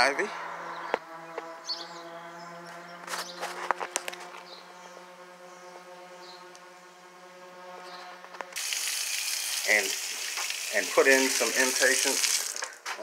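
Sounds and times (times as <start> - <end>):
water spraying from hose nozzle: 8.6 - 12.8.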